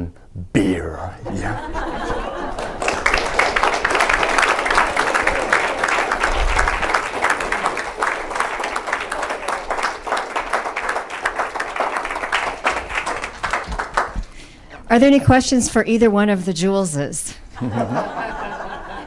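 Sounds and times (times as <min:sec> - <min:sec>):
audience applauding: 0:02.2 - 0:14.4.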